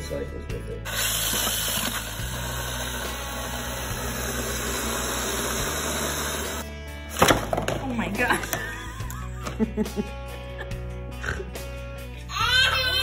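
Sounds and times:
drill motor whirring: 0.9 - 6.6.

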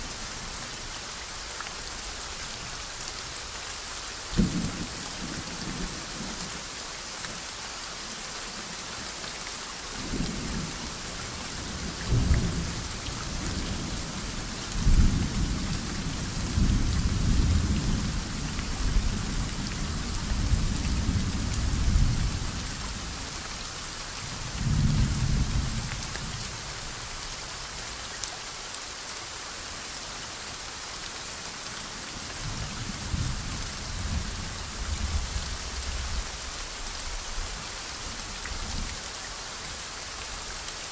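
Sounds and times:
soft rain: 0.0 - 40.9.

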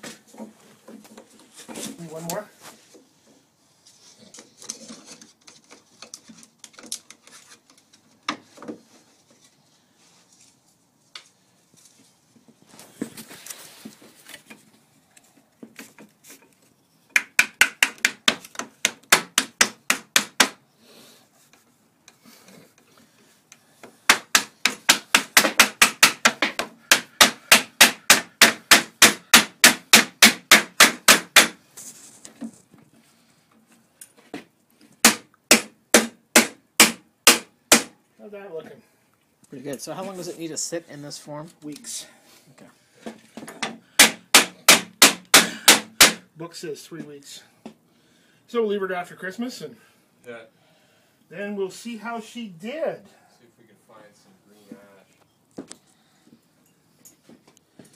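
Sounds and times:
rapid hammer taps on wood: 24.1 - 31.6.

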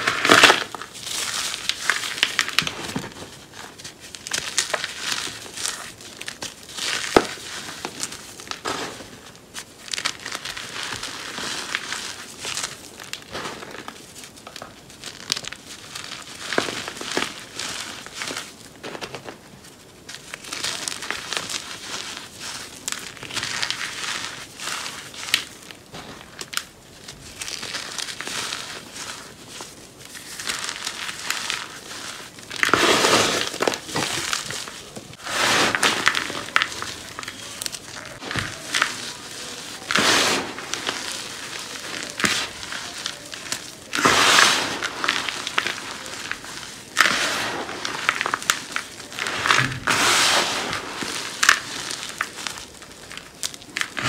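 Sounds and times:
cornstarch crunching by hand: 0.0 - 54.0.

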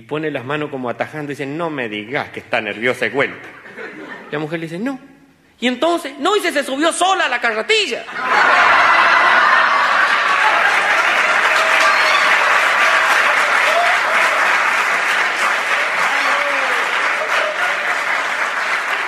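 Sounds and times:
audience applauding: 8.3 - 19.0.

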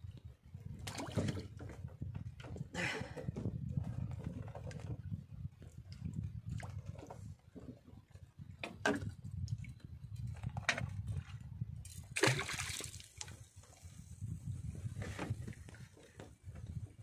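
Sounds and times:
water splashing against boat hull: 0.7 - 2.5, 11.9 - 13.9.

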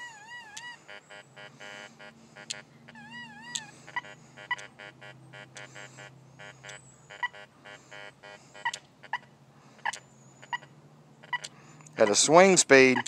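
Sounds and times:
metal detector warbling tone: 0.0 - 7.5
metal detector short beeps: 0.0 - 8.8, 9.8 - 12.2, 12.8 - 13.0.

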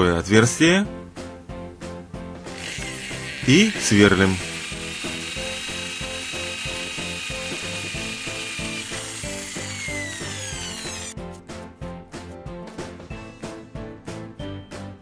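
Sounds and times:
background music with steady beat: 0.0 - 15.0
electric drill whining into metal: 2.5 - 11.2.

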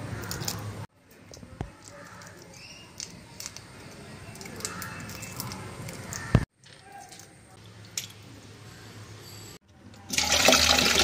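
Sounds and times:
prawns being peeled: 0.0 - 8.1.

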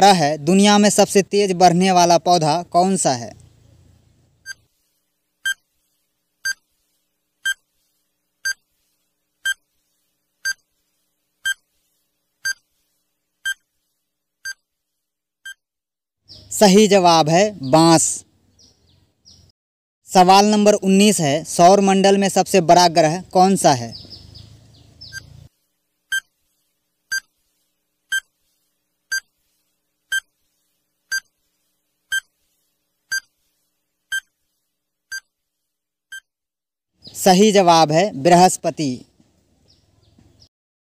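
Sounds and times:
short electronic beeps: 7.4 - 7.6.

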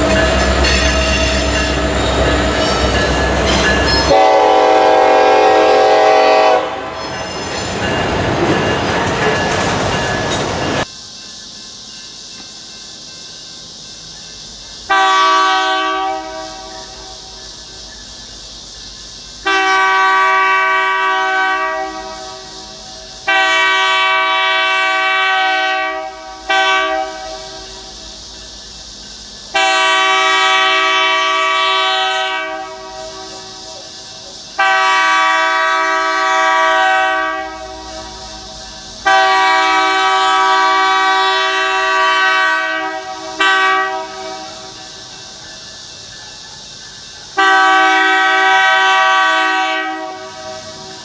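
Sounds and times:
locomotive air horn blasts: 0.0 - 7.4, 14.9 - 17.3, 19.4 - 22.4, 23.2 - 27.6, 29.5 - 33.8, 34.6 - 38.2, 39.0 - 44.7, 47.4 - 50.9.

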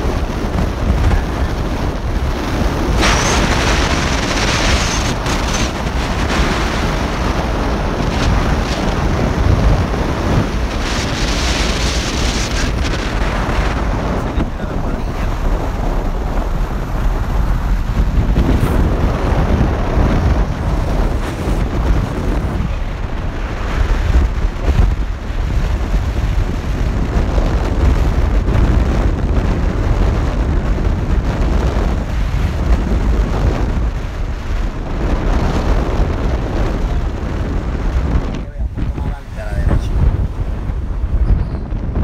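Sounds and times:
car road noise: 0.0 - 42.0
wind buffeting microphone: 0.0 - 42.0.

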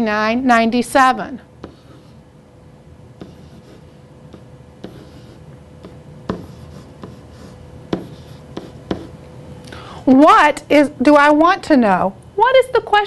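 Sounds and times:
pen tapping on whiteboard: 3.2 - 9.1.

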